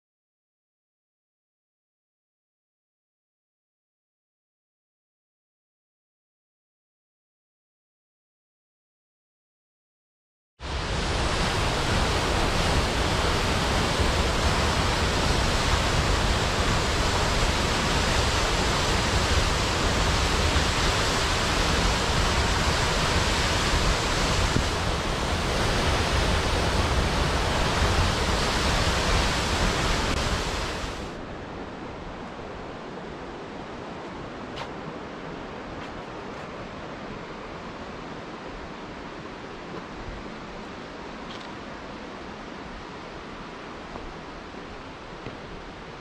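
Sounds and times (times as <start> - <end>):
waterfall rushing: 10.6 - 31.3.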